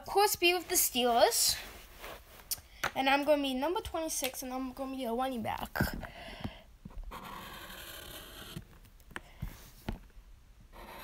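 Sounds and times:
marker pen scratching on paper: 7.0 - 8.7, 10.7 - 11.0.

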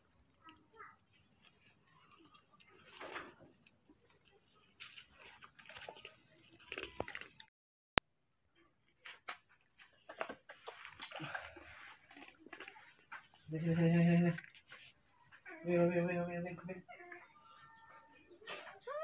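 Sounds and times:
footsteps on leaves and gravel: 1.5 - 7.4.

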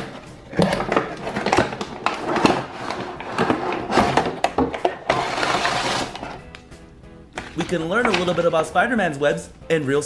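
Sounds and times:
cardboard and plastic packaging handled: 0.0 - 6.4.

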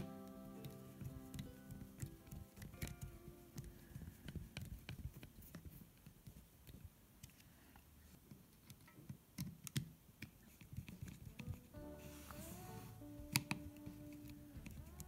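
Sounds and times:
screwdriver clicks and taps: 0.6 - 7.4, 8.6 - 11.6, 13.2 - 15.0.

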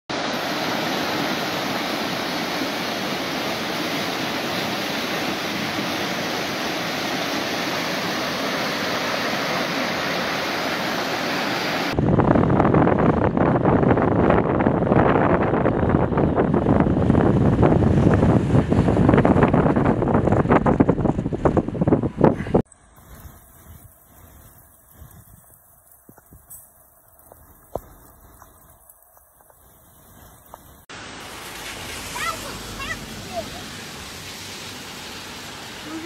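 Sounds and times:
floodwater rushing: 0.1 - 12.0, 22.9 - 36.0
wind buffeting microphone: 11.9 - 30.9.

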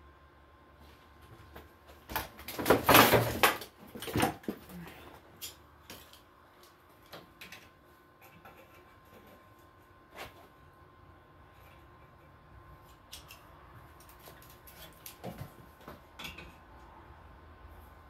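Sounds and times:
knocks and rattles of handling: 1.3 - 6.2.

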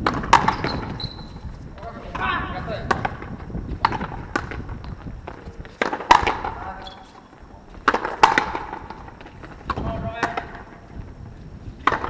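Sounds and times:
rubber ball cracking off racket: 2.8 - 6.7, 7.8 - 10.7.

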